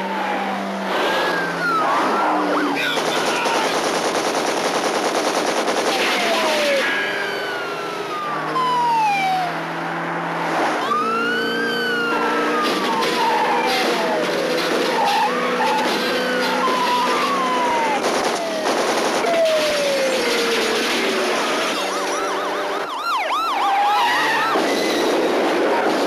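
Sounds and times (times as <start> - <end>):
police sirens wailing: 0.0 - 4.1, 5.6 - 26.0
cars passing at speed: 6.9 - 18.0.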